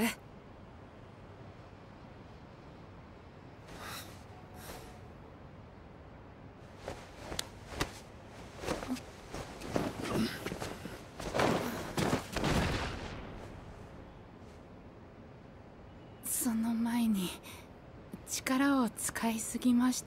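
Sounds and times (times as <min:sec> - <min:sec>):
bodies moving over rubble: 0:06.7 - 0:14.0.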